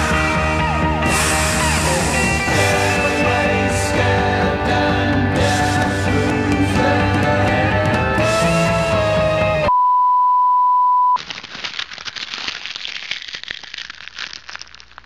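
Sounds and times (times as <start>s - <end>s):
guitar music: 0.0s - 9.7s
loud single-pitched beep: 9.7s - 11.2s
dense irregular crackling: 11.2s - 15.0s.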